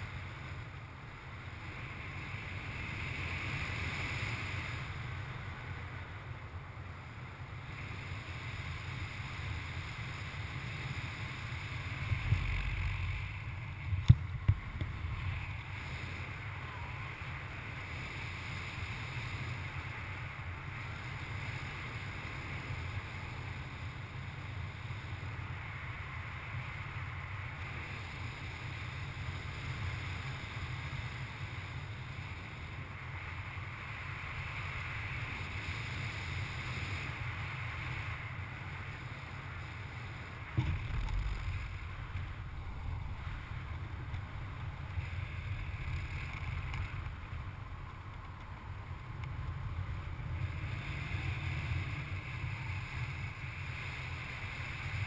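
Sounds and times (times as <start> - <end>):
wind rushing over microphone: 7.7 - 24.0, 31.4 - 55.0
knocks on microphone: 40.6 - 41.6
low rumble: 40.6 - 48.0.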